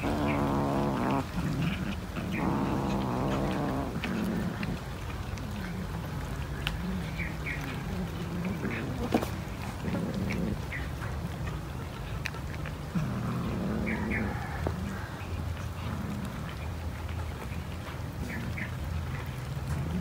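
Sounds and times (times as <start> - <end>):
cat growling: 0.0 - 15.2
clicks of cats eating: 0.0 - 20.0.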